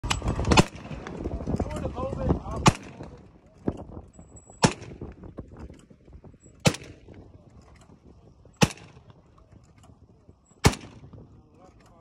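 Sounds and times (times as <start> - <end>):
shotgun shots: 0.4 - 1.0, 2.6 - 3.1, 4.6 - 5.0, 6.6 - 7.1, 8.6 - 9.1, 10.6 - 11.2.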